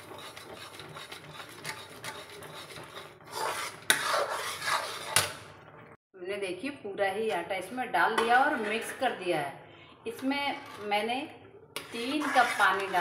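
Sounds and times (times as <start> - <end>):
metal spoon scraping a pan: 0.0 - 5.5, 8.2 - 9.3, 10.1 - 11.1, 11.8 - 13.0.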